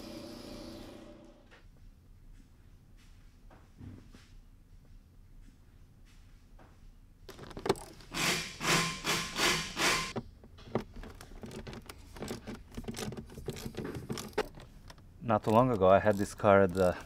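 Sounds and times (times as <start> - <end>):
tool rasping: 8.0 - 10.2, 11.1 - 17.0.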